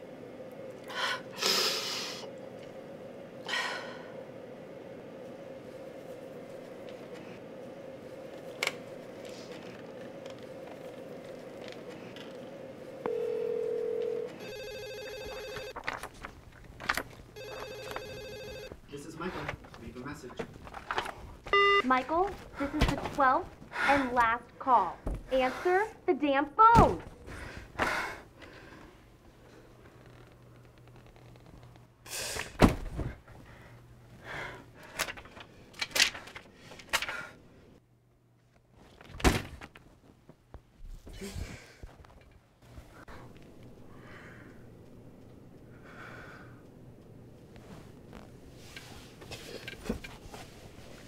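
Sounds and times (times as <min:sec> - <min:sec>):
telephone ringback tone: 0:13.1 - 0:15.8, 0:17.4 - 0:18.7, 0:21.5 - 0:21.9
telephone ringer trilling: 0:13.1 - 0:15.8, 0:17.4 - 0:18.7.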